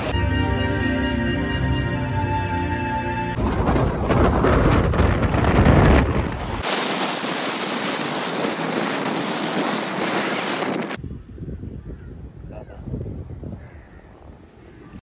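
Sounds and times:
wind buffeting microphone: 3.4 - 15.0.

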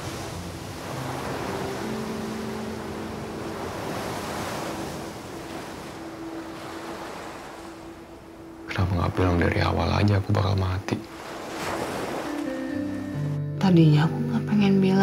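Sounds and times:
waves washing on rocky shore: 0.0 - 8.0, 11.1 - 12.5
wind: 0.0 - 13.4.

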